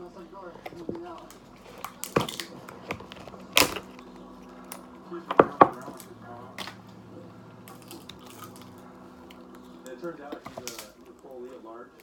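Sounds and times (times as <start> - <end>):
lobster shell cracking: 1.2 - 4.8, 10.5 - 11.2.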